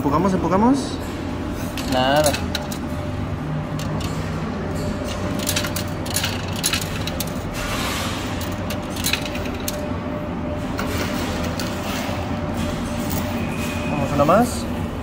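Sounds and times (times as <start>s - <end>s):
coins clinking: 1.7s - 3.0s, 3.6s - 9.9s.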